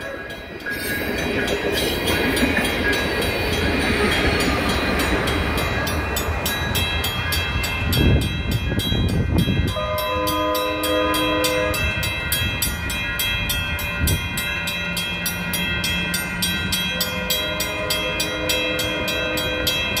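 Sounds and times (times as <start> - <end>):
crossing bell ringing: 0.0 - 20.0
train rumbling on track: 0.0 - 20.0
train air horn chord: 9.7 - 12.1.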